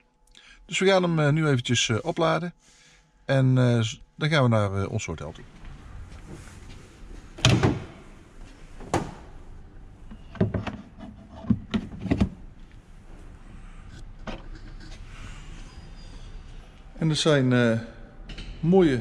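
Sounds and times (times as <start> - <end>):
car door shutting: 7.4 - 8.0.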